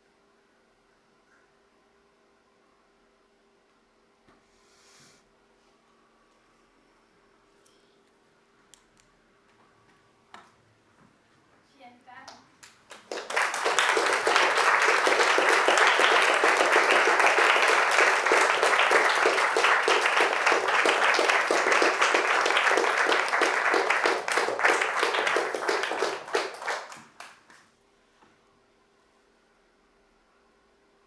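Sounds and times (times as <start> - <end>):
audience applauding: 12.6 - 27.6.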